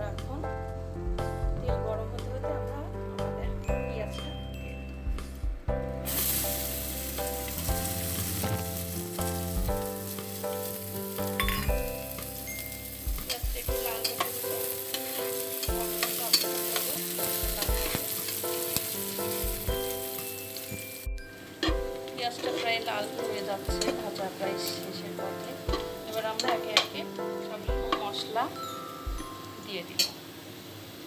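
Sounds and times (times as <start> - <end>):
light background melody: 0.0 - 30.2
onions sizzling in oil: 6.0 - 31.0
spatula scraping pan: 21.6 - 23.1.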